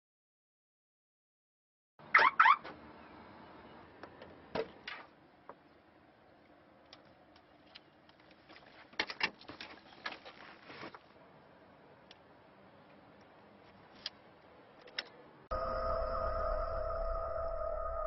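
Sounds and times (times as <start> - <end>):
car alarm chirps: 15.5 - 18.0.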